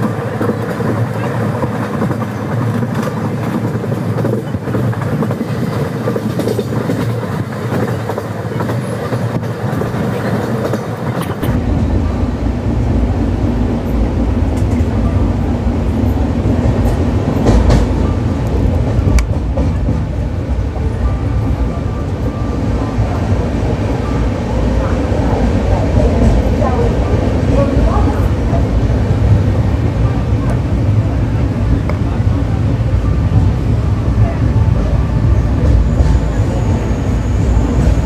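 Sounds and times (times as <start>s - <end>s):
train wheels rumbling on track: 0.0s - 38.0s.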